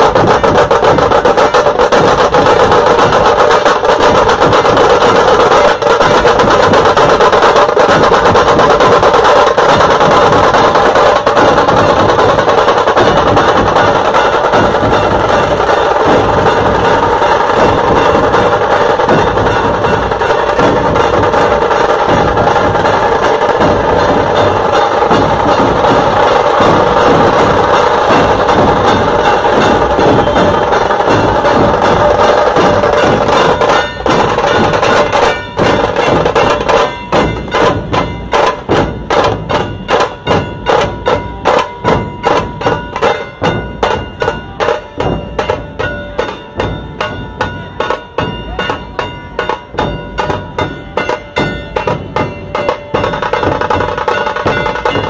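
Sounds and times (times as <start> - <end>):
massed drums playing: 0.0 - 55.0.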